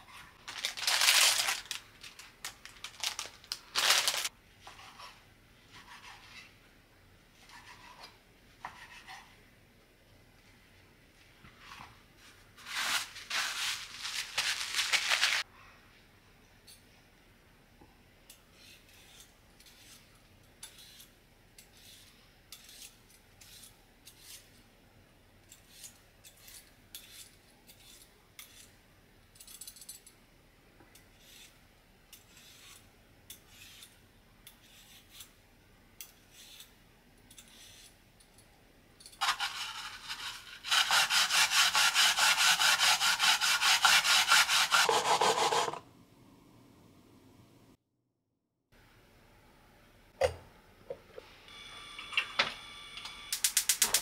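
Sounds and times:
peeler scraping yam skin: 32.2 - 32.9, 33.5 - 34.0, 34.6 - 35.4, 37.4 - 38.0, 39.2 - 45.8
yam rubbed on plastic grater: 39.2 - 45.8.

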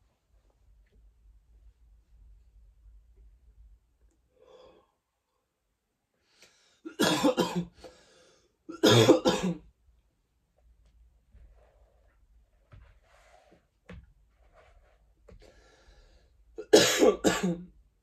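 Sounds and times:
man coughing: 6.9 - 7.7, 8.7 - 9.6, 16.6 - 17.7.

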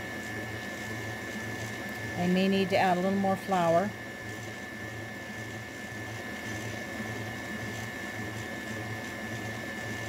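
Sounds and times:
stand mixer motor whining: 0.0 - 10.0.

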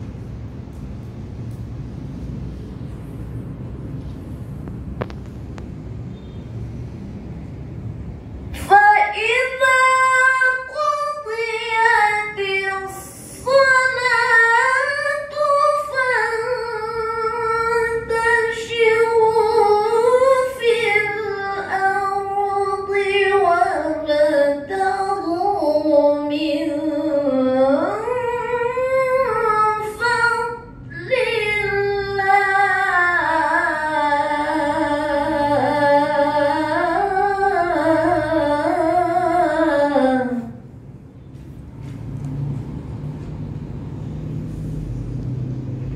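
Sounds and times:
woman reciting melodically: 8.4 - 40.8.

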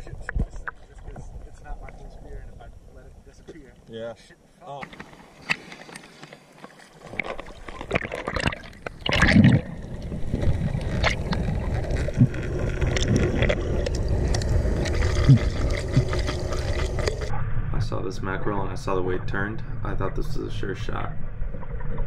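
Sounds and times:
steady underwater rumble: 0.0 - 3.9, 7.0 - 22.0
water sloshing and gurgling: 4.8 - 17.5.

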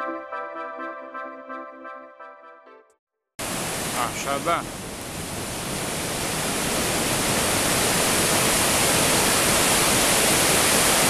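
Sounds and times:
waterfall rushing over rocks: 3.4 - 11.0.

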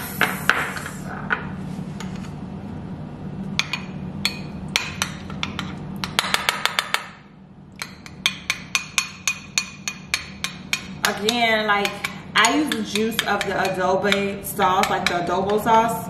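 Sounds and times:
spoon tapping glass bowl: 7.8 - 15.6.

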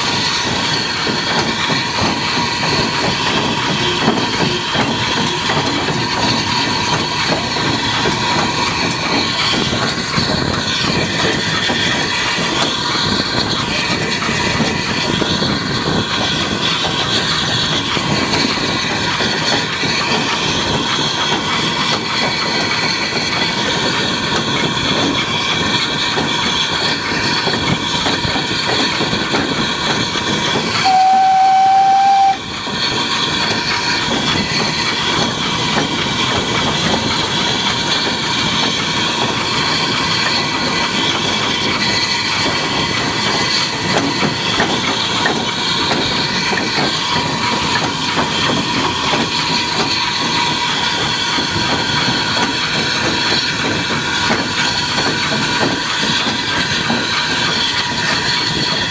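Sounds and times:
steam locomotive running: 0.0 - 58.9
steam whistle blast: 30.8 - 32.5.

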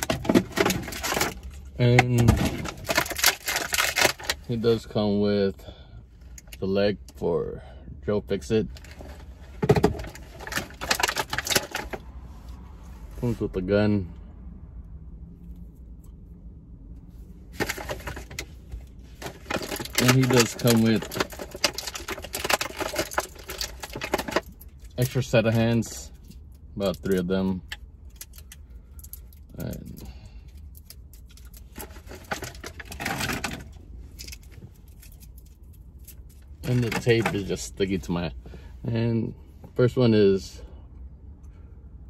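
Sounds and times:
low steady hum: 0.0 - 42.0
plastic packaging rustling: 2.4 - 4.4, 17.6 - 18.5, 19.1 - 24.9, 30.9 - 37.6
plastic packaging crackling: 2.6 - 4.4, 19.2 - 25.0.

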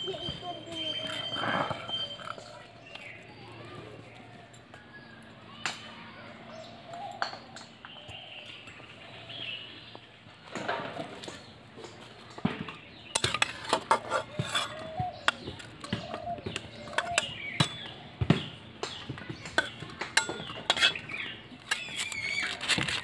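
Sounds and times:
metal spoon clinking on metal pots: 13.1 - 17.9, 19.4 - 22.6.

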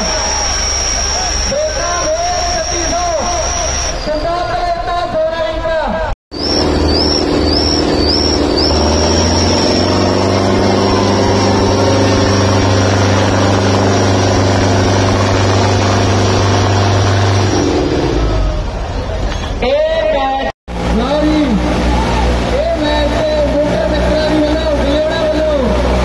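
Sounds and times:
high steady whine: 0.0 - 4.6, 6.3 - 18.9
diesel tractor engines under load: 0.0 - 26.0.

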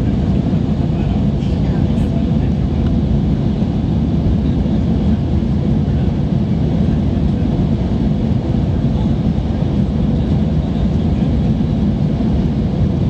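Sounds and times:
airliner engines rumbling: 0.0 - 13.0.

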